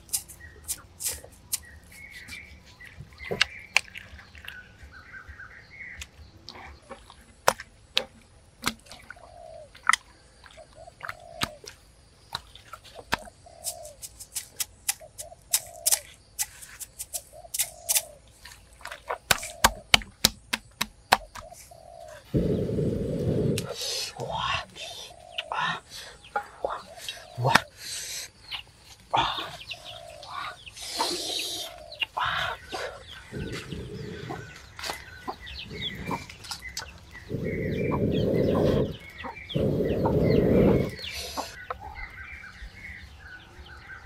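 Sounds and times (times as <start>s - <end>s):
birds chirping warbles: 0.0s - 44.0s
dove cooing: 29.2s - 41.6s.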